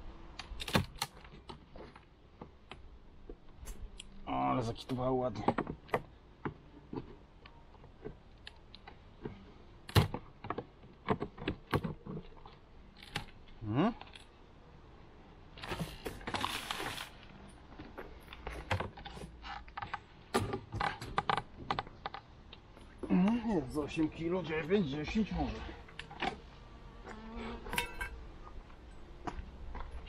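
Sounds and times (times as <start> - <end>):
wooden frames clicking and scraping: 4.8 - 14.3, 15.5 - 23.4.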